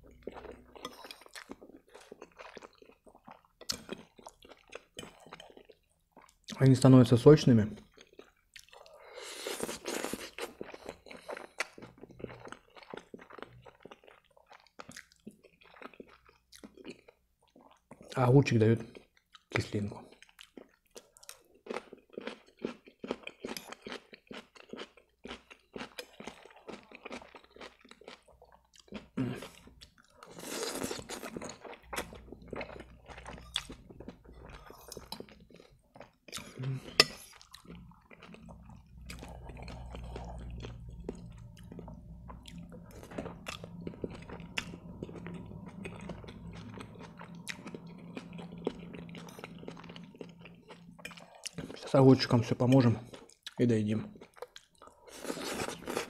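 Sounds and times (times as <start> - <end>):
wet chewing: 18.9 - 56.0.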